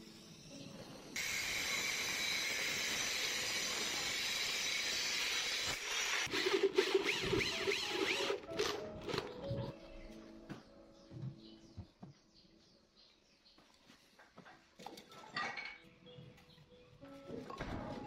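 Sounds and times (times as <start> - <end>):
angle grinder cutting steel: 1.2 - 8.4
electric drill boring into steel: 1.2 - 8.7.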